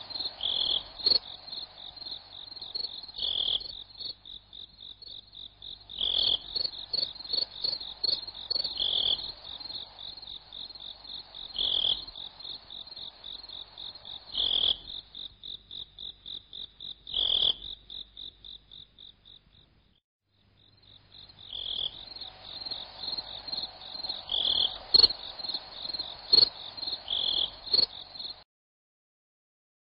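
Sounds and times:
frogs calling: 0:00.0 - 0:19.7, 0:20.6 - 0:28.4
crickets chirping: 0:00.0 - 0:20.0, 0:20.6 - 0:28.4.

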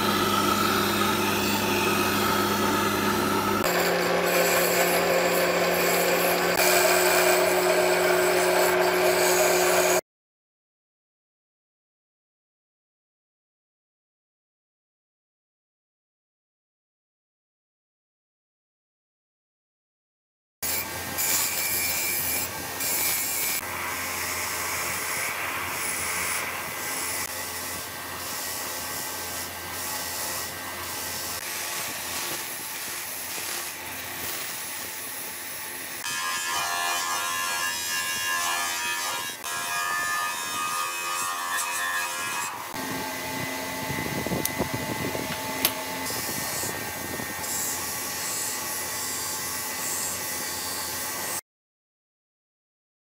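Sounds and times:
bench grinder scraping metal: 0:00.0 - 0:10.0, 0:20.6 - 0:51.4.

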